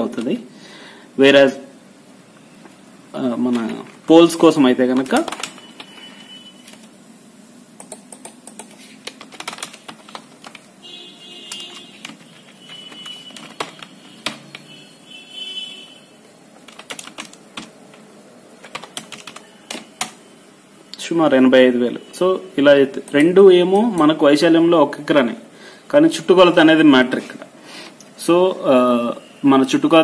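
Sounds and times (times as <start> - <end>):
keyboard clicks and taps: 4.9 - 5.9, 7.8 - 10.7, 11.5 - 14.7, 16.6 - 18.0, 18.6 - 20.2.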